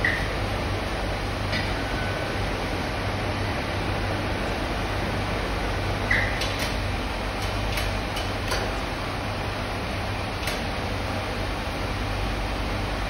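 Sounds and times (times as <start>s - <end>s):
furnace rushing and humming: 0.0s - 13.0s.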